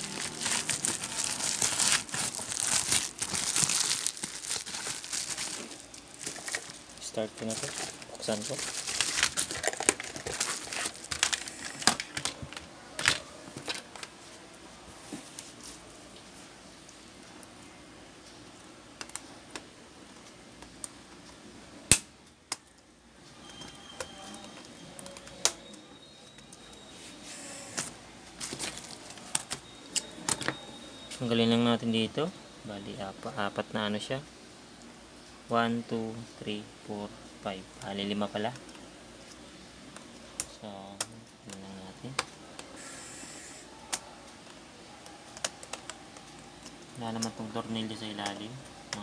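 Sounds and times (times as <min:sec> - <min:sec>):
plastic crinkling: 0:00.0 - 0:14.0, 0:28.4 - 0:29.6.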